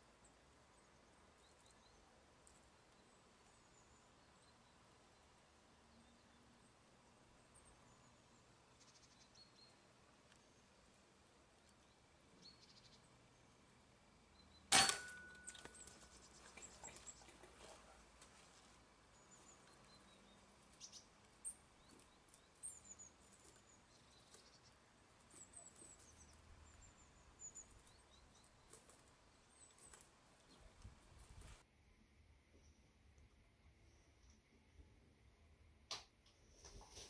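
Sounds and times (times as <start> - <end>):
air rifle shot: 14.7 - 15.3.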